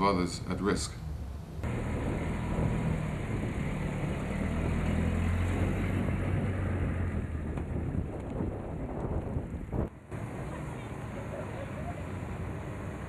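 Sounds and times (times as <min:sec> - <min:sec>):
tow vehicle engine humming: 0:00.0 - 0:13.0.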